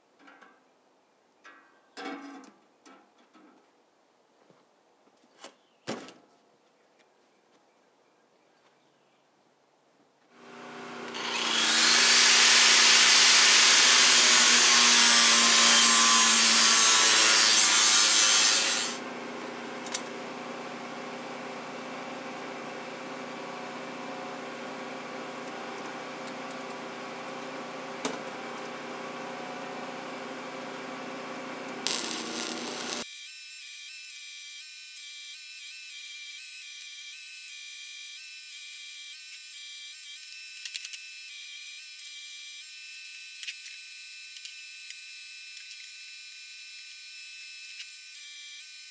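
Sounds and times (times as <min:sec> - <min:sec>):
power tool cutting steel: 0:10.4 - 0:19.0, 0:29.4 - 0:48.9
mig welding: 0:11.0 - 0:19.0, 0:31.6 - 0:48.9.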